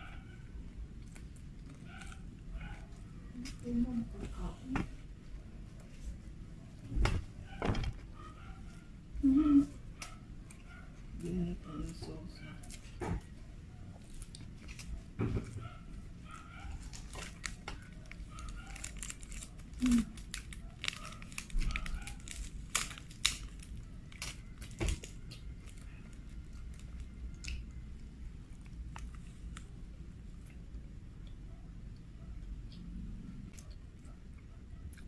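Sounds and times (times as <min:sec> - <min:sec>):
chewing: 0:00.9 - 0:03.7, 0:13.9 - 0:35.0
crunching fried chicken: 0:13.9 - 0:30.8.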